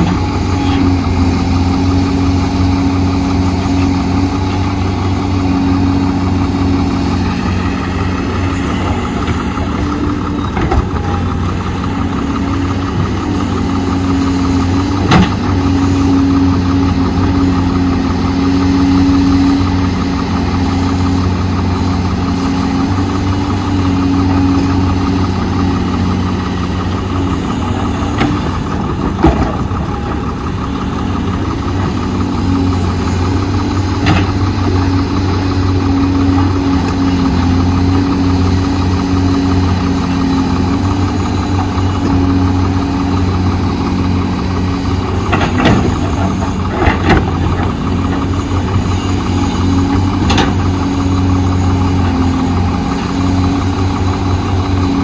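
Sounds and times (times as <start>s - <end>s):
diesel engine running: 0.0s - 55.0s.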